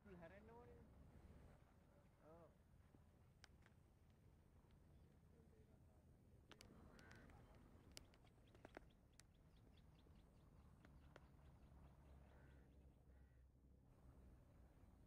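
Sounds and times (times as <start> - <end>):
faint clicks: 6.5 - 9.8
faint bird calls: 6.6 - 13.5.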